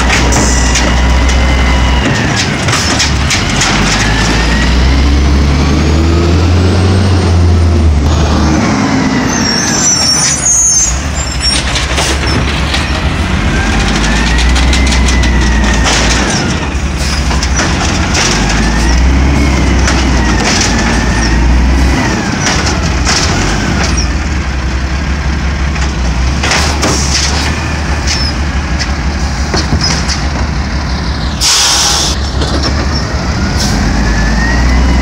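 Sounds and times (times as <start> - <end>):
diesel engine under load: 0.0 - 35.0
burst of air hiss: 31.4 - 32.2.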